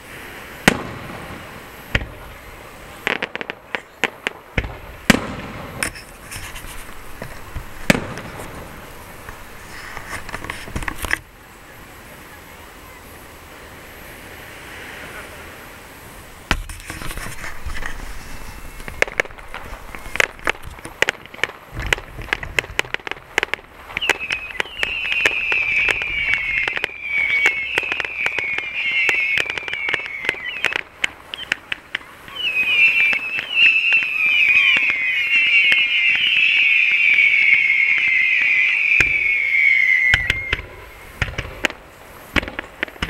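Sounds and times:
firework falling whistles: 0.0 - 11.2, 16.5 - 43.0
firework cracks and pops: 0.0 - 11.4, 16.5 - 43.0
firework launch thumps: 0.6 - 2.2, 4.6 - 11.2, 16.5 - 32.1, 37.2 - 39.4, 40.1 - 43.0.

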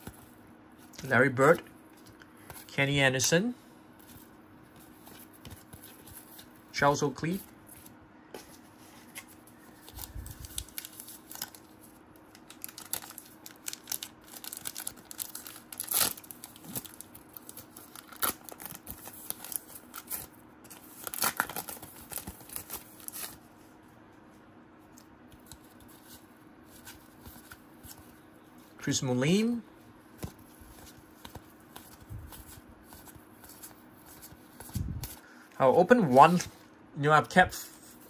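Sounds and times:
cards rustling: 4.0 - 23.4, 30.1 - 36.6
wrapper crinkling and tearing: 9.8 - 23.4.

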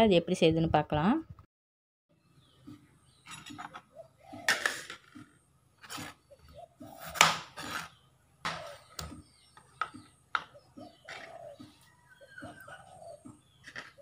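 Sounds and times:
knife scraping cucumber skin: 7.0 - 8.0.

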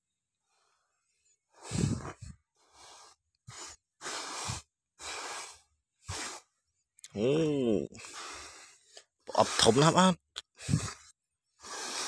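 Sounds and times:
hand sweeping sand: 2.8 - 6.5, 9.3 - 10.1.

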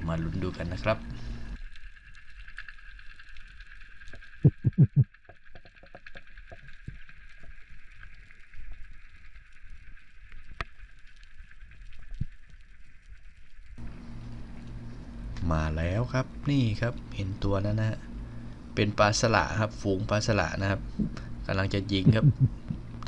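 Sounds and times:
loud low thumps: 4.4 - 5.1.

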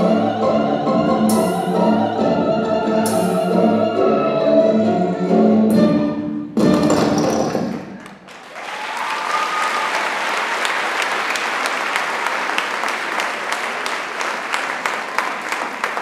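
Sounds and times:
orchestral music: 0.0 - 8.0
audience applause: 8.0 - 16.0.

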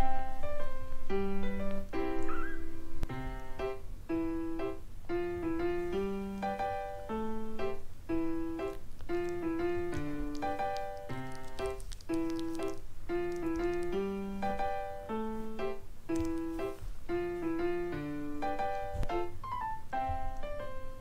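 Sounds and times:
piano melody: 0.0 - 21.0.

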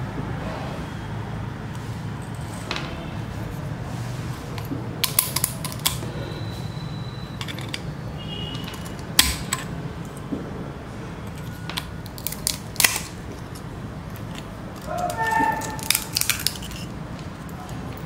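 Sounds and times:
seashell cracking under pliers: 11.3 - 17.6.

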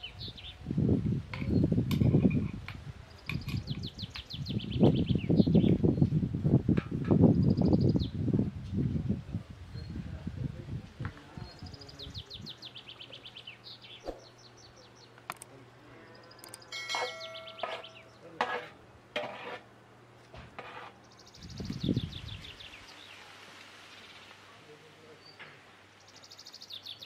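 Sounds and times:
songbird trilling: 16.2 - 18.2.

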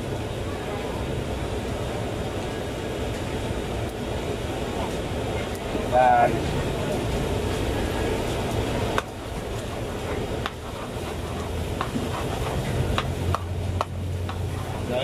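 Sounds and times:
sizzling: 0.0 - 15.0
steady low hum: 0.0 - 15.0
spatula scraping noodles in wok: 9.7 - 13.5.

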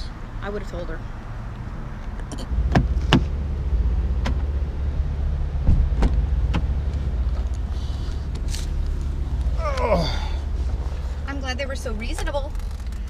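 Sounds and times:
steady low rumble: 0.0 - 13.0
car door clicks and knocks: 2.1 - 3.4, 4.2 - 4.5, 5.6 - 6.8.

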